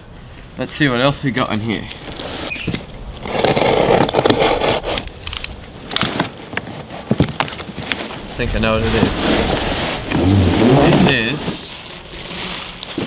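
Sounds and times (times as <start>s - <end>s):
tape and cardboard crackling: 1.7s - 13.0s
utility knife scraping tape: 2.1s - 6.2s.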